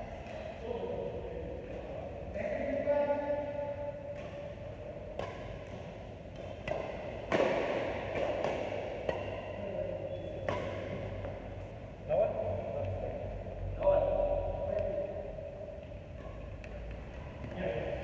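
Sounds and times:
rackets hitting shuttlecock: 0:00.1 - 0:00.6, 0:03.9 - 0:11.7, 0:15.7 - 0:18.0.

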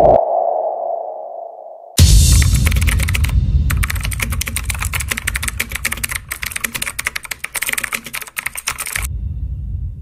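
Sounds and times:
keyboard key clicks: 0:04.4 - 0:09.1
low rumble: 0:09.1 - 0:10.0.

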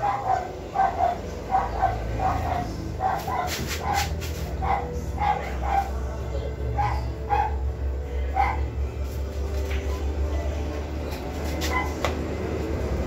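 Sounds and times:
dog barking in high yelps: 0:00.0 - 0:06.0, 0:06.7 - 0:07.6, 0:08.3 - 0:08.7, 0:11.7 - 0:12.0.

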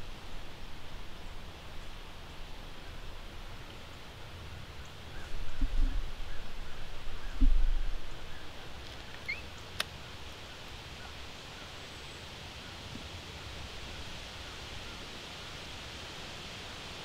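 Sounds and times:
faint steady hiss: 0:00.0 - 0:17.0
bird chirps: 0:09.2 - 0:09.6.

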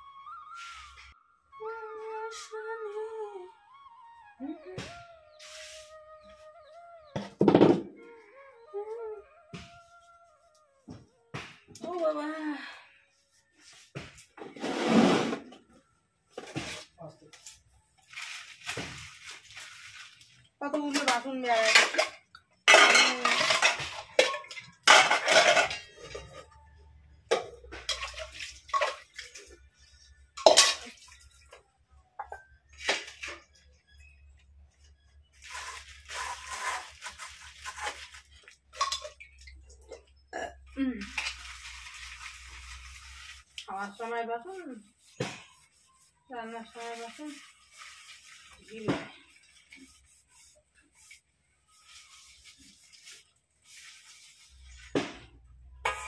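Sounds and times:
metal utensils clanking: 0:20.9 - 0:26.5, 0:27.3 - 0:29.5, 0:30.4 - 0:31.2.

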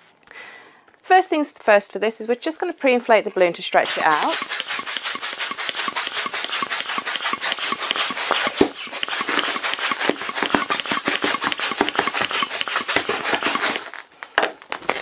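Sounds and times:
hand pump rasping air: 0:03.8 - 0:14.1.

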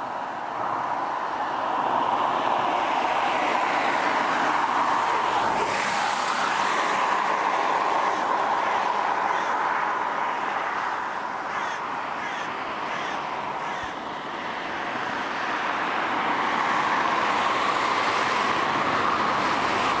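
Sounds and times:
outdoor traffic noise: 0:00.0 - 0:20.0
crow cawing: 0:08.0 - 0:14.2.

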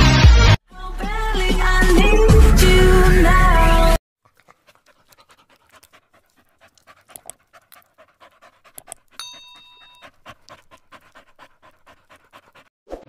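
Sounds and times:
dog panting: 0:04.2 - 0:12.7.

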